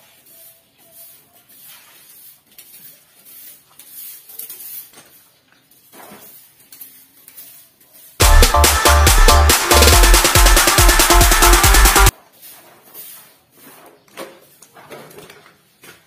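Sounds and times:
stick broom sweeping dirt: 0.0s - 8.3s, 12.1s - 14.8s.

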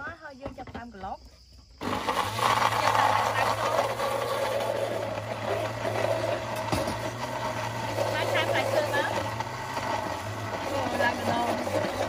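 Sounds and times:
blender running: 1.8s - 12.0s.

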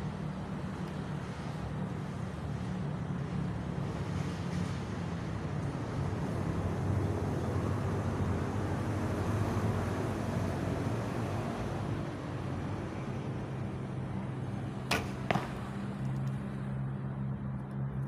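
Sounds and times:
low outdoor rumble: 11.8s - 18.0s.

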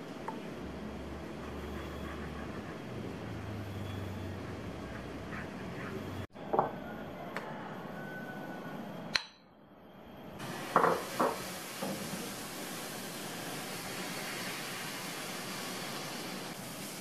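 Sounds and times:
steady hiss: 10.4s - 17.0s.

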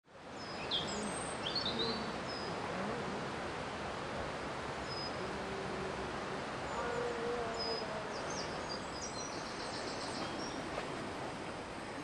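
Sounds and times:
outdoor hiss: 0.1s - 12.0s
birds chirping: 6.6s - 11.0s.

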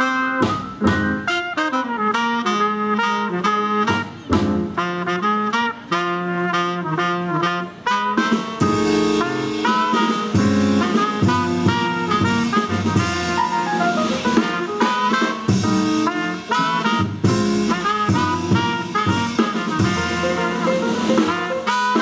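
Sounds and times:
drums and cymbals: 0.0s - 1.6s, 3.8s - 5.0s, 7.7s - 22.0s
trumpet: 0.0s - 22.0s
tenor saxophone: 1.3s - 22.0s
upright bass: 8.6s - 14.7s, 15.5s - 22.0s.

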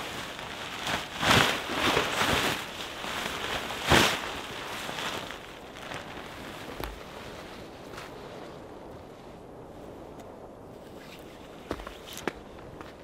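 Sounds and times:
tarp rustling and flapping: 0.0s - 10.1s.

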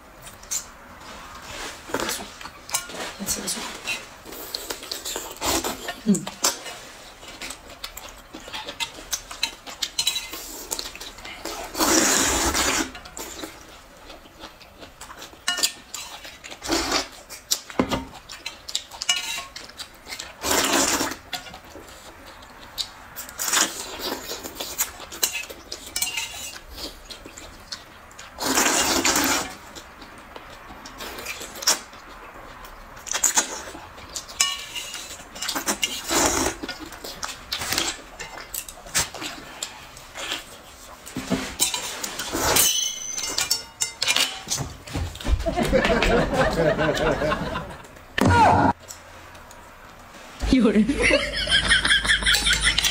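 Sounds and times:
noodles being slurped: 0.4s - 17.7s, 18.3s - 42.6s
chopsticks clinking on metal bowls: 5.9s - 11.1s, 15.4s - 16.4s, 18.2s - 20.2s, 25.2s - 26.6s, 34.1s - 38.8s, 41.6s - 44.6s.

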